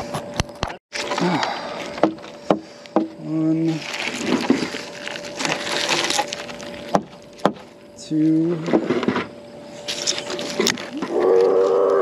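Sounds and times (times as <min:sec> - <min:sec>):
rope handling and scraping: 0:03.6 - 0:11.5.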